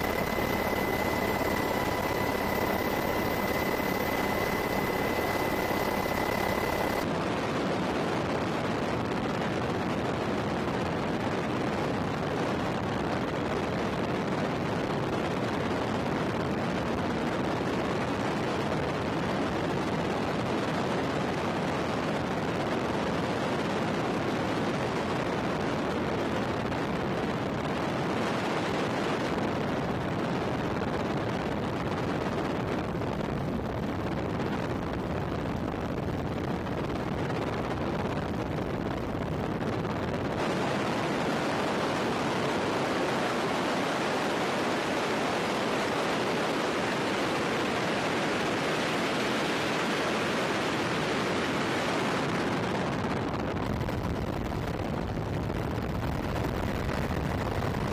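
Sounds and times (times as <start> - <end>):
high whine: 0.0 - 7.1
helicopter rotor roar: 0.0 - 8.1
rushing wind: 0.0 - 57.9.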